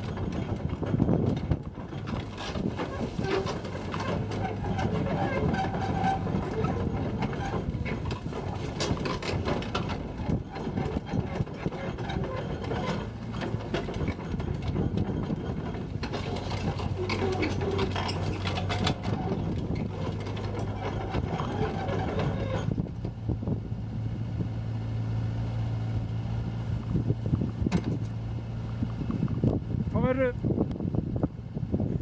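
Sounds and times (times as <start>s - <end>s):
machine clanks and knocks: 0.0s - 23.4s, 27.4s - 28.2s
excavator diesel engine running: 0.0s - 32.0s.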